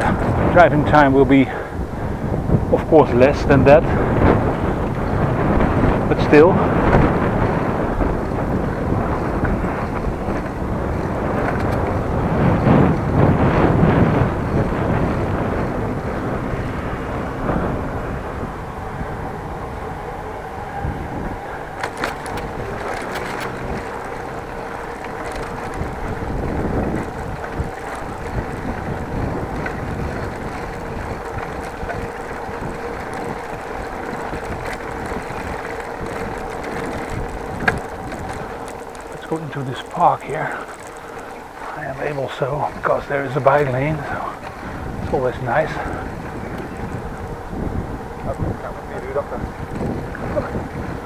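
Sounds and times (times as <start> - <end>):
bicycle rolling: 0.0 - 51.0
wind on microphone: 0.0 - 51.0
sharp clicks and rattles: 4.2 - 13.4, 21.7 - 51.0.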